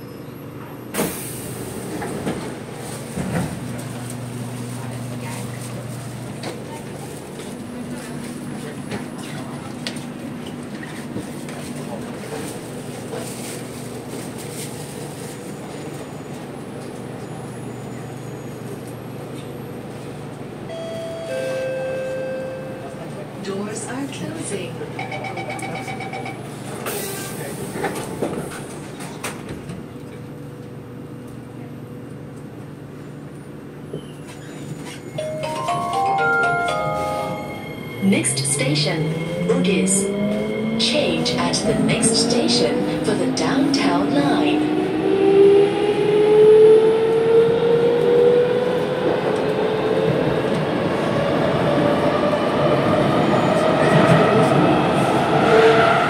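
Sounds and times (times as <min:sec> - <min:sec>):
stopped train humming: 0:00.0 - 0:56.0
door warning beeps: 0:25.0 - 0:26.4.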